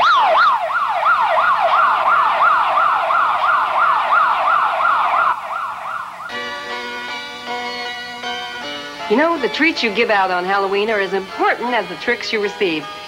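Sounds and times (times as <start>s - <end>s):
police siren yelping: 0.0s - 6.4s.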